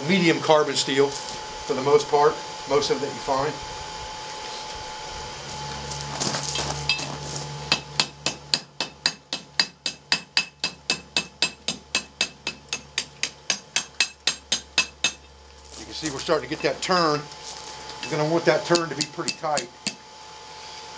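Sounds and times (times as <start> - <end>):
steady hum: 0.0 - 20.9
hammer ringing on anvil: 7.7 - 15.3, 18.0 - 20.0.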